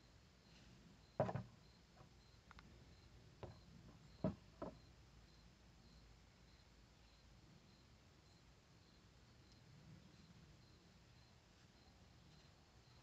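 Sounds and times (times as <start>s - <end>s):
knocks on a wooden table: 1.2s - 1.5s, 4.2s - 4.8s.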